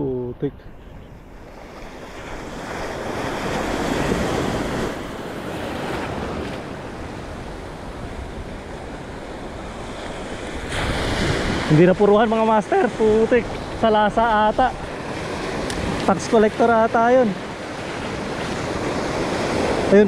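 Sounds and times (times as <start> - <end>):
wind buffeting microphone: 0.0 - 20.0
surf breaking on rocky shore: 1.2 - 20.0.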